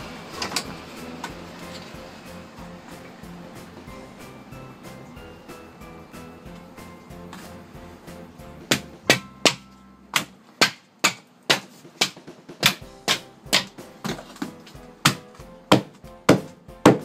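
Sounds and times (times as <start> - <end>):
mallet knocking on splitting blade: 8.7 - 17.0.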